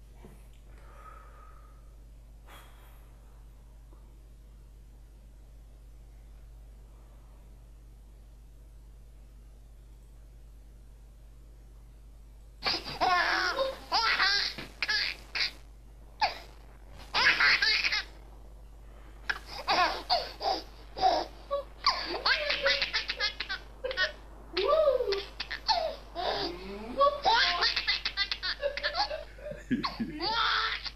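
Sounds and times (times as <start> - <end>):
baby laughing: 12.6 - 15.6, 16.2 - 16.5, 17.1 - 18.1, 19.3 - 30.9.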